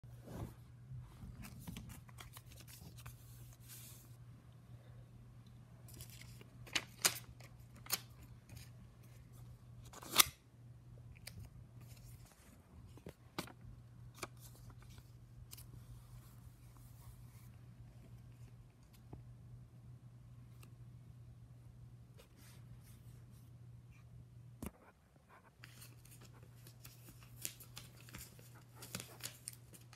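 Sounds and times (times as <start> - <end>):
soft paper rustling: 0.2 - 4.2, 5.8 - 9.5, 11.2 - 19.2, 24.7 - 29.9.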